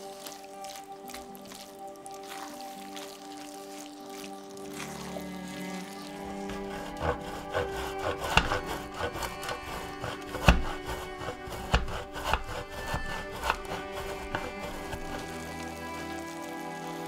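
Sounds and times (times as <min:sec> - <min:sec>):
cheese grating on metal grater: 0:06.0 - 0:17.0.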